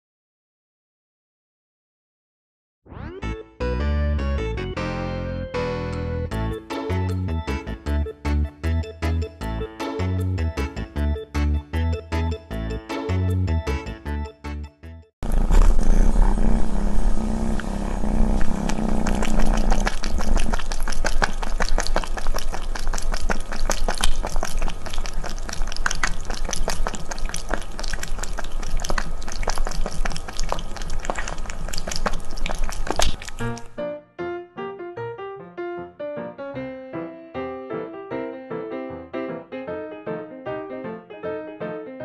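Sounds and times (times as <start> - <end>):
cat lapping water: 15.2 - 33.8.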